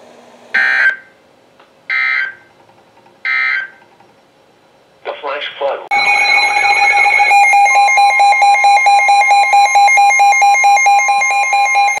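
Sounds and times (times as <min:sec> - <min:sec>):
weather radio alarm beeping: 0:05.9 - 0:12.0.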